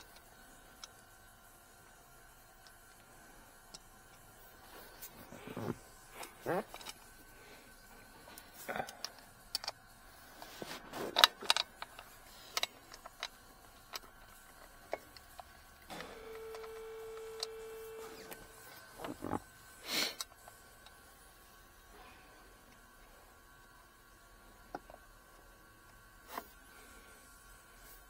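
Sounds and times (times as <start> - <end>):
electric whine: 15.8 - 21.0.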